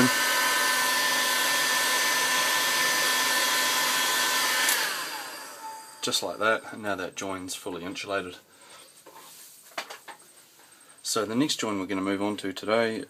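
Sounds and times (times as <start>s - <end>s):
heat gun blowing with whine: 0.0s - 6.7s.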